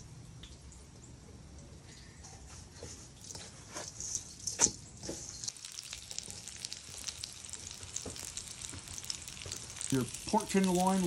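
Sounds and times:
cutlets sizzling in oil: 4.1s - 11.0s.

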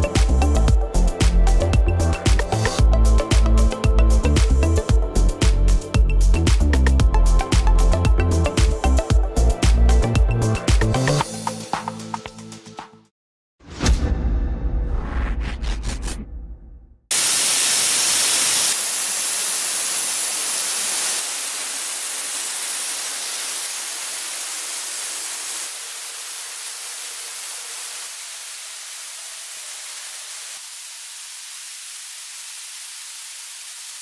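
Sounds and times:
high-pressure water jet hissing: 0.0s - 5.8s, 17.1s - 34.0s.

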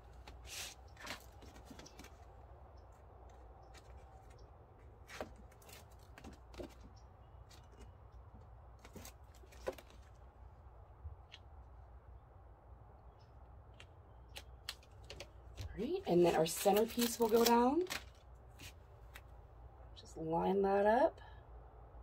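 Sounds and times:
plastic sheet crinkling: 16.0s - 18.2s.

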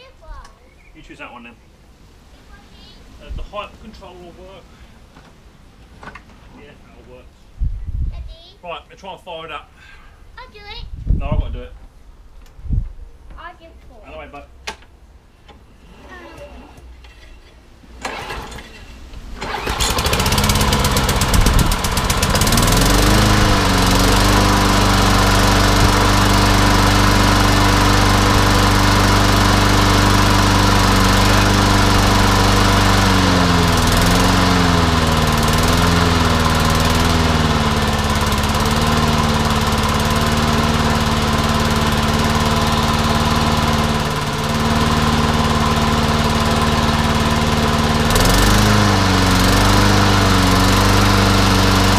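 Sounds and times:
lawnmower engine running: 17.9s - 51.9s.

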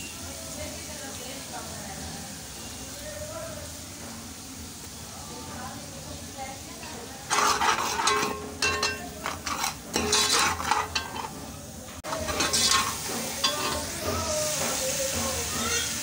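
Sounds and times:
oil sizzling: 0.0s - 16.0s
ladle scraping metal pot: 6.8s - 14.8s.

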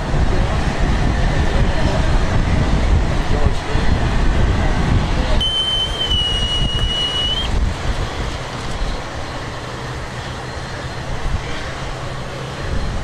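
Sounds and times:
high whistle pipe note: 5.4s - 7.5s.

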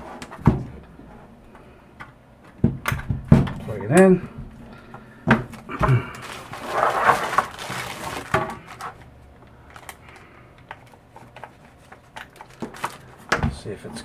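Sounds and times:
power cord rustling: 5.5s - 9.1s.

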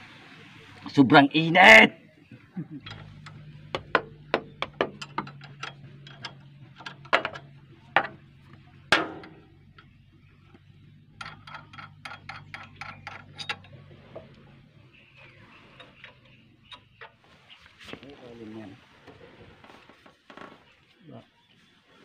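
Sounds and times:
hand tools clinking on metal: 2.8s - 8.2s, 11.1s - 14.3s.

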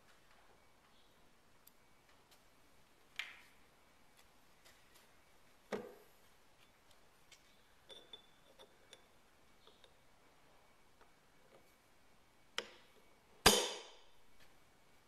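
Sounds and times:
light metallic clinks: 7.8s - 9.8s.

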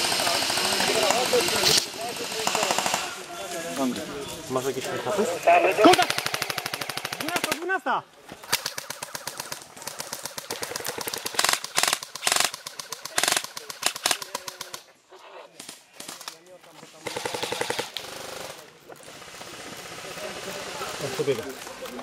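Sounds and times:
airsoft guns firing bursts: 0.0s - 3.3s, 5.8s - 7.8s, 8.4s - 14.9s, 17.0s - 21.4s.

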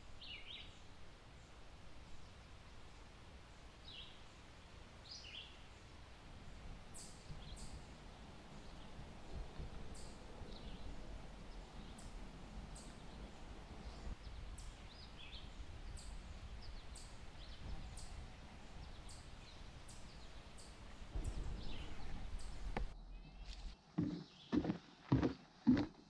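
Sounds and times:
birds chirping: 6.9s - 26.0s.

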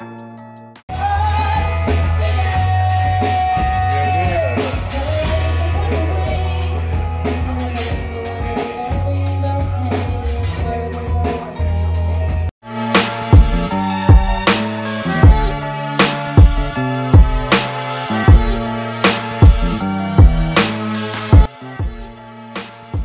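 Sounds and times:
bass guitar: 0.0s - 22.2s
woman singing: 0.9s - 11.8s
drum beat: 12.8s - 23.0s.

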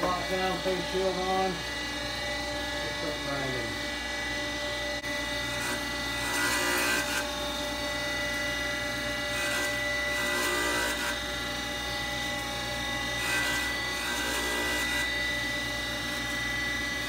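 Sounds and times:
motor whine: 0.0s - 17.0s
stone wheel grinding metal: 5.4s - 7.4s, 9.0s - 11.3s, 13.1s - 15.2s.

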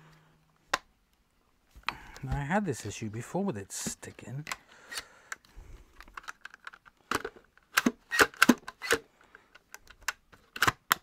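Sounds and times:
plastic clicks and knocks: 9.6s - 11.0s.

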